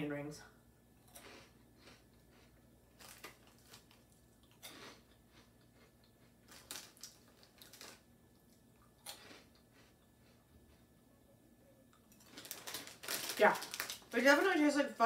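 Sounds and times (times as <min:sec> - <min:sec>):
faint chewing of crunchy snacks: 0:01.0 - 0:14.2.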